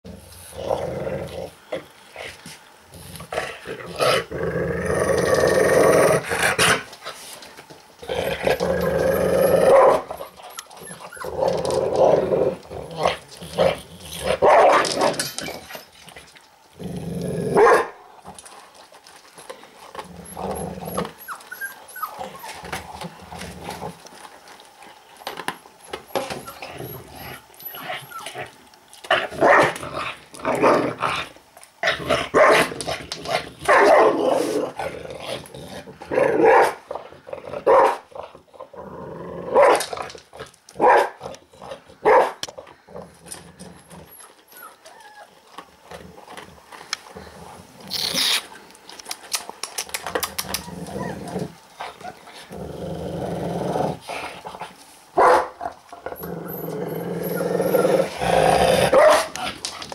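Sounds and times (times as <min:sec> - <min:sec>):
dog growling: 0:00.1 - 0:02.3, 0:02.9 - 0:06.8, 0:08.0 - 0:15.6, 0:16.7 - 0:17.6, 0:19.9 - 0:24.0, 0:26.2 - 0:40.1, 0:49.9 - 0:54.8, 0:55.6 - 0:59.9
kibble crunching: 0:05.2 - 0:38.6, 0:39.6 - 0:52.8, 0:57.5 - 0:59.9
dog snarling barks: 0:13.0 - 0:15.2, 0:17.3 - 0:18.0, 0:29.1 - 0:31.2, 0:31.8 - 0:33.0, 0:33.6 - 0:35.4, 0:36.1 - 0:36.9, 0:37.5 - 0:38.3, 0:39.3 - 0:39.9, 0:40.8 - 0:42.4, 0:55.2 - 0:55.6, 0:57.7 - 0:59.6.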